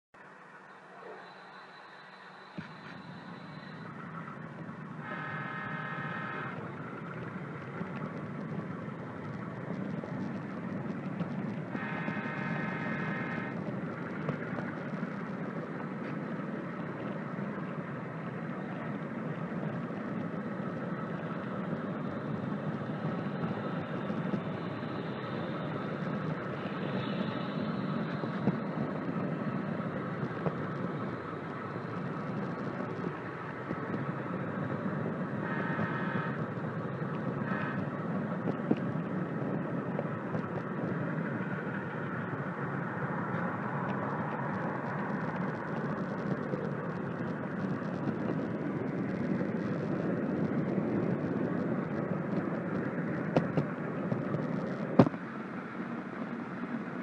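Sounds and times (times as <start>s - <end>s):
model train rumbling on track: 0.2s - 57.0s.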